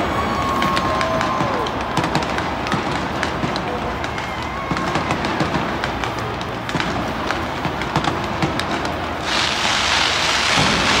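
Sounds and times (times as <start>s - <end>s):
crackling hiss of fireworks: 0.0s - 11.0s
fireworks popping and cracking: 0.0s - 11.0s.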